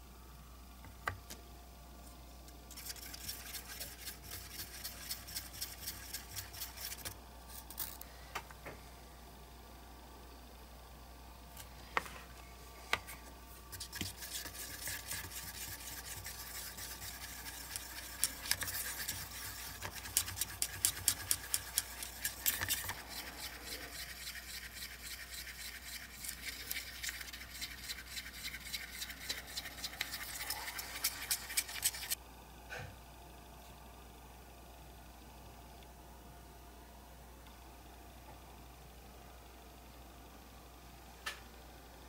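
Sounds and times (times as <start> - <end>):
stick scraping paint cup: 2.7 - 7.1, 13.0 - 32.2.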